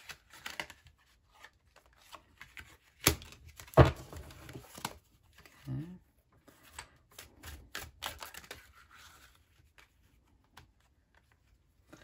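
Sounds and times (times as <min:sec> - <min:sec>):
cards being shuffled: 0:00.0 - 0:05.6, 0:06.4 - 0:12.0.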